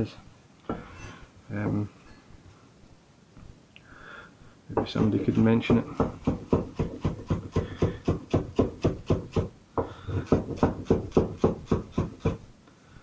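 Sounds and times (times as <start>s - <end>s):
knife chopping on wooden board: 4.8s - 12.4s.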